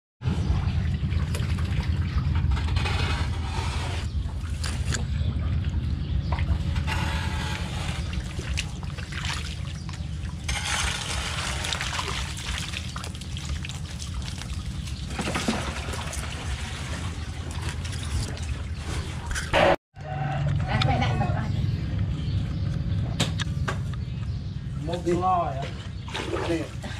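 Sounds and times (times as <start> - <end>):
steady low rumble: 0.2 - 19.7, 20.4 - 25.1
pond water splashing: 0.3 - 19.6, 24.9 - 26.9.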